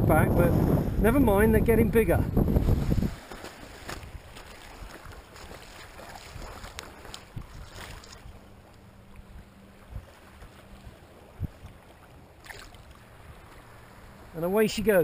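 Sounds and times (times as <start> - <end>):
wind on microphone: 0.0 - 8.4, 9.3 - 11.8
small waves lapping: 2.3 - 15.0
light splashing in water: 2.8 - 8.3, 12.4 - 13.1.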